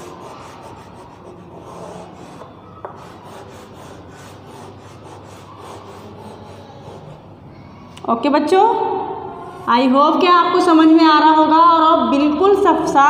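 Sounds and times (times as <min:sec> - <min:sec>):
chalk rubbing on chalkboard: 0:00.0 - 0:07.3.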